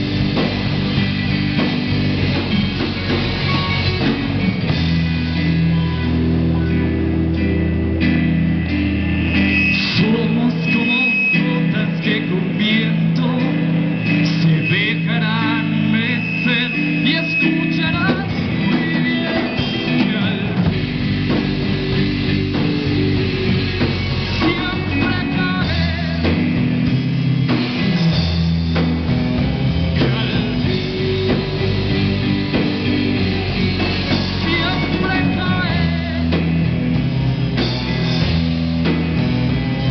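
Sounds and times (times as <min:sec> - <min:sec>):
live rock band playing: 0:00.0 - 0:39.9
person singing: 0:09.8 - 0:26.8, 0:30.0 - 0:36.8.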